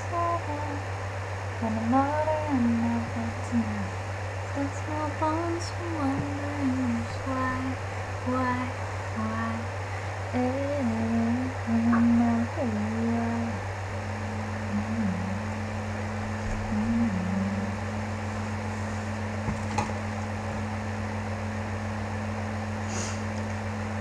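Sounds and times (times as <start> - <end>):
electrical hum: 0.0 - 24.0
woman humming: 4.6 - 9.6, 10.4 - 13.6, 14.6 - 15.6, 16.4 - 17.9.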